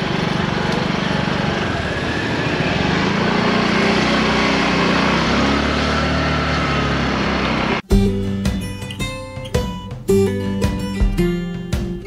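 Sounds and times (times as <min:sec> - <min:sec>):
motor scooter engine running: 0:00.0 - 0:07.8
road and wind noise: 0:00.0 - 0:07.8.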